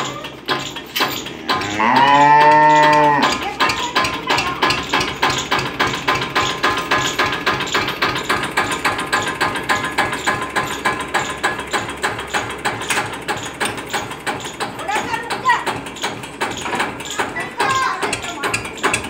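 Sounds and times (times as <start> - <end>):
tractor diesel engine idling: 0.0 - 1.7, 2.8 - 19.0.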